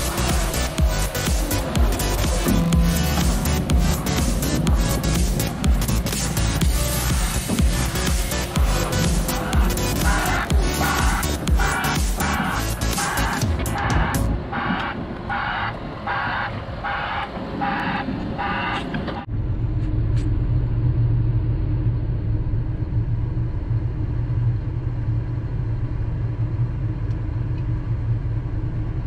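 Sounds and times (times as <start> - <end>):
background music with steady beat: 0.0 - 15.0
heavy machine engine humming: 0.0 - 29.0.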